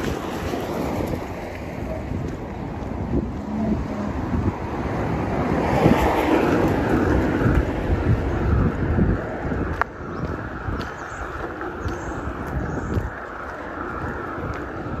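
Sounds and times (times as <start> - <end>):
wind buffeting microphone: 0.0 - 15.0
car passing by: 3.1 - 9.9.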